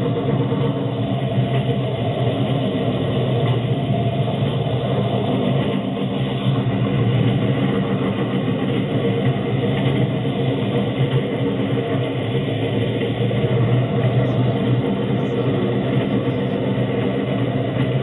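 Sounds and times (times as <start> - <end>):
engine running: 0.0 - 18.0.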